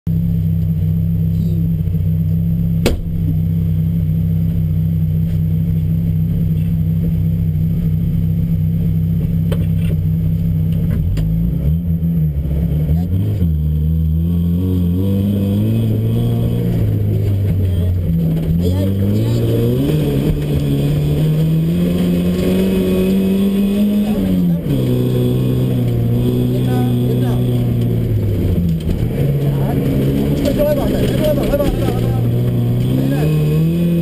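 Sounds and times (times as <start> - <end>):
car engine idling and revving: 0.1 - 34.0.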